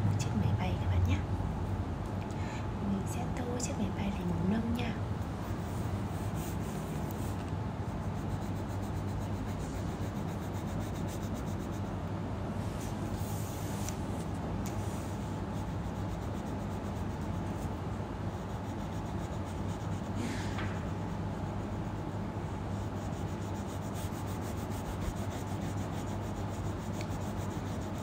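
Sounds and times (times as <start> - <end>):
steady low hum: 0.0 - 28.0
pen rubbing on paper: 5.4 - 12.0, 14.7 - 20.2, 20.8 - 28.0.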